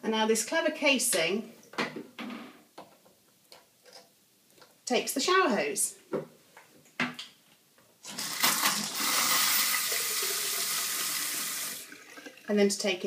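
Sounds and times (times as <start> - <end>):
shower water spraying into basin: 8.1 - 12.4.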